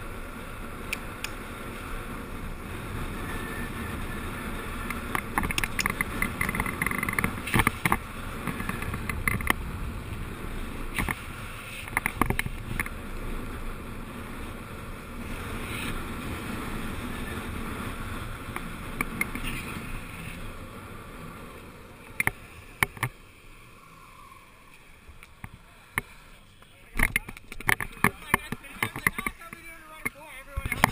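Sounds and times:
skate wheels rolling on asphalt: 0.0s - 30.9s
skateboard clacking over bumps: 4.9s - 9.6s, 26.9s - 30.9s.

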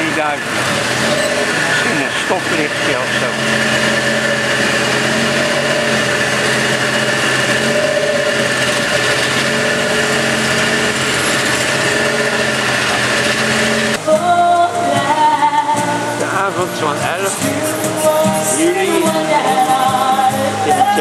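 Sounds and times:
traffic: 0.0s - 14.2s
small motorcycle engine running: 0.0s - 21.0s
live band with singing and guitars: 14.0s - 21.0s.

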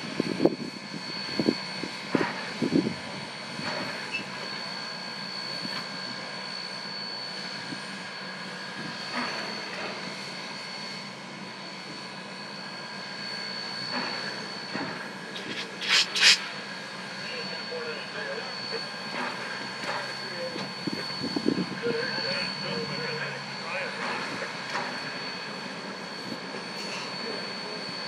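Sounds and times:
steam locomotive hissing and whining: 0.0s - 28.0s.

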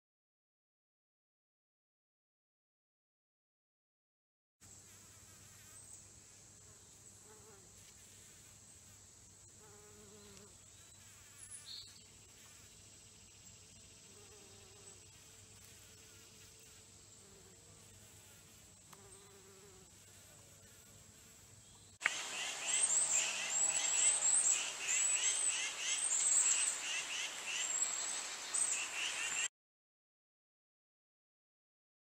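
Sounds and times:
bee buzzing: 4.9s - 13.3s, 14.0s - 29.5s.

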